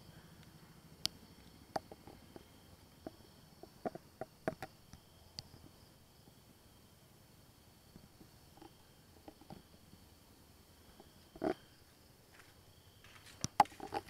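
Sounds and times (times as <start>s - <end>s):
sharp irregular clicks and knocks: 0.4s - 5.7s, 8.0s - 9.7s, 12.4s - 14.0s.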